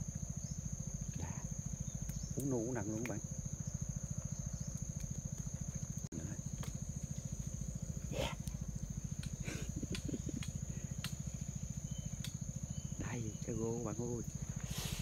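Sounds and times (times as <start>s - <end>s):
high-pitched insect drone: 0.0s - 15.0s
low pulsing hum: 0.0s - 15.0s
faint ticks: 1.0s - 3.2s, 4.0s - 7.6s, 8.4s - 12.7s.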